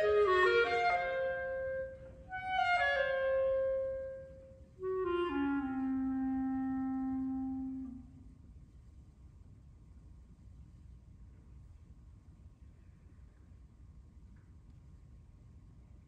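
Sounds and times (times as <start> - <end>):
clarinet playing: 0.0 - 8.4.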